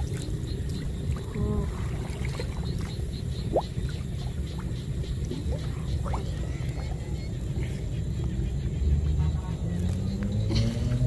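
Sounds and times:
water sloshing around waders: 0:00.0 - 0:07.9.

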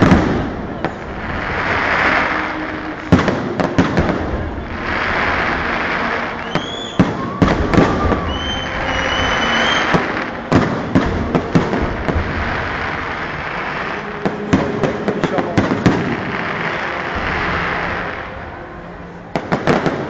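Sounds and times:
firework shells bursting: 0:00.0 - 0:18.0
hissing crackle of fireworks: 0:00.0 - 0:20.0
whistling tone: 0:04.9 - 0:10.4.

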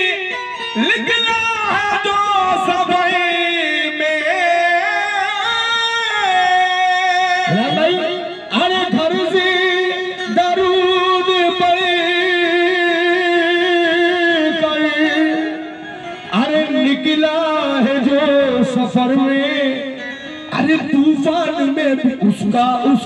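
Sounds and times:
harmonium: 0:00.0 - 0:23.0
man singing long wavering notes: 0:00.0 - 0:23.0.

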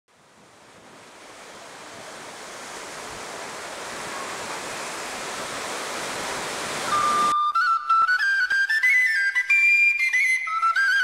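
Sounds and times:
sea surf breaking on rocks: 0:00.4 - 0:07.4.

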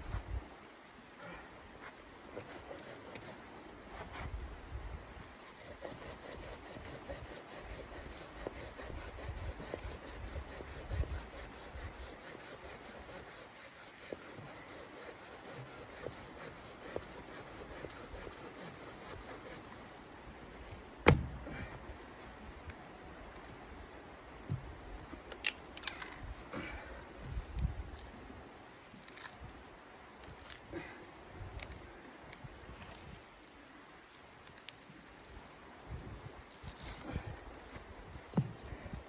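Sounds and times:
hand saw cutting wood: 0:05.4 - 0:19.9.

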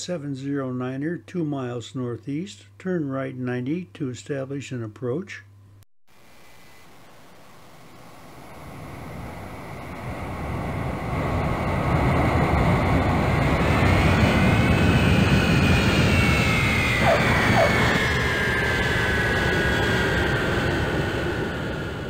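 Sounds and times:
jet aircraft flying past: 0:06.6 - 0:22.0.

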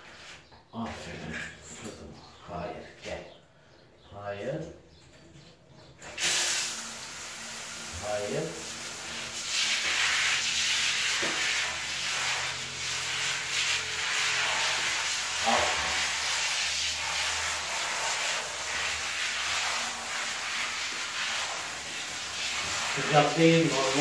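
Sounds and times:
shower spray hissing: 0:06.1 - 0:24.0.

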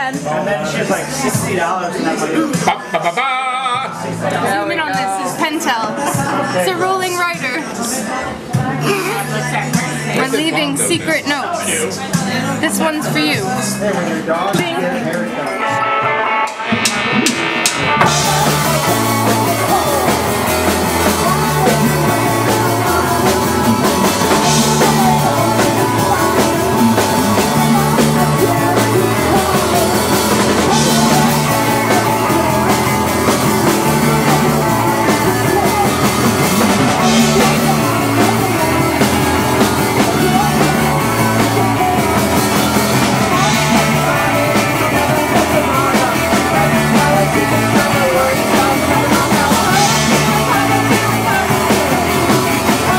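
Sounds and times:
punk rock band playing: 0:00.0 - 0:52.9
woman singing: 0:18.0 - 0:52.9.

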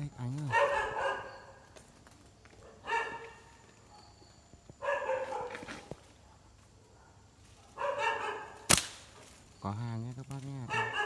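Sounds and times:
dog barking: 0:00.4 - 0:01.7, 0:02.6 - 0:04.2, 0:04.8 - 0:08.7, 0:10.6 - 0:11.0.

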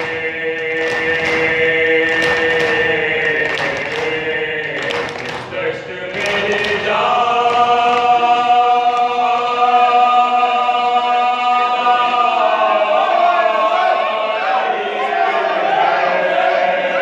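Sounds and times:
men chanting together: 0:00.0 - 0:17.0.

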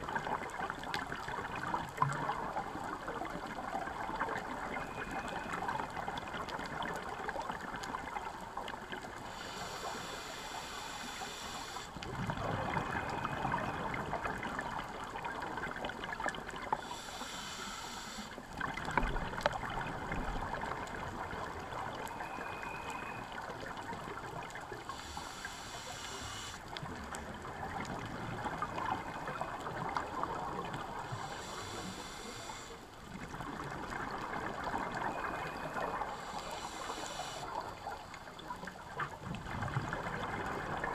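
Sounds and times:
regulator inhalation hiss: 0:09.3 - 0:12.0, 0:16.8 - 0:18.4, 0:24.9 - 0:26.6, 0:31.0 - 0:32.8, 0:36.1 - 0:37.9.

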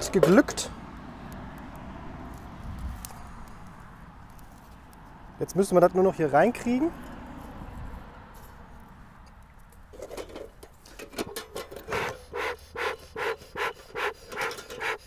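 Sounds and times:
bellows puffing: 0:11.8 - 0:15.0.

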